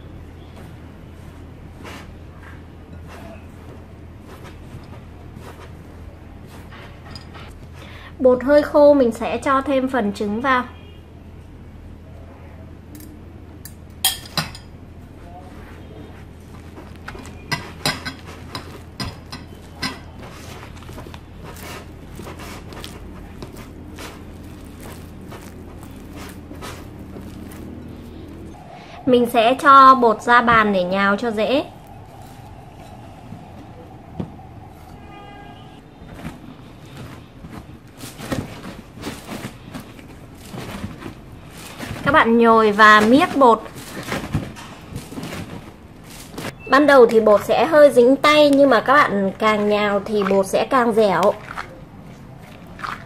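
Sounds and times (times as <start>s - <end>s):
hands kneading crumbly dough: 0.0s - 9.8s, 14.9s - 53.0s
hands mixing egg into flour: 15.5s - 28.5s.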